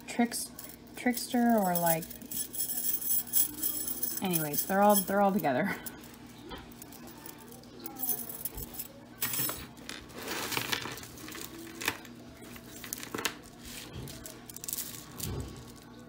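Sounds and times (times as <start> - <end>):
jewelry clinking and jingling: 0.5 - 9.7.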